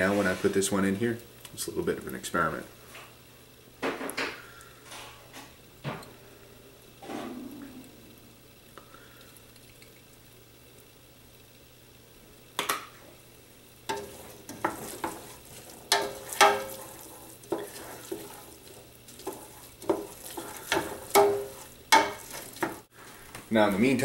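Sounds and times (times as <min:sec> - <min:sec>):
onions sizzling in oil: 0:00.0 - 0:24.0
spoon knocking and scraping pot: 0:13.9 - 0:22.9.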